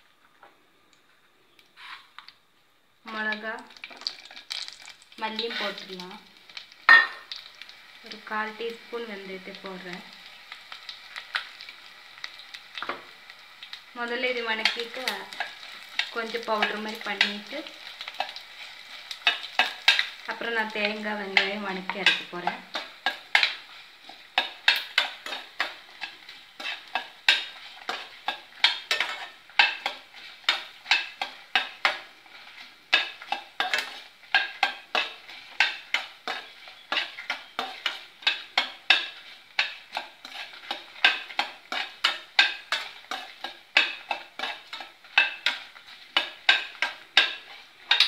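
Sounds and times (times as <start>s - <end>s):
spatula scraping metal pan: 21.3s - 48.0s.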